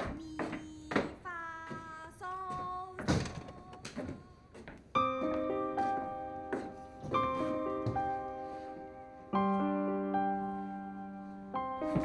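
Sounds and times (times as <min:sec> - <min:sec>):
slow gentle piano music: 0:04.8 - 0:12.0.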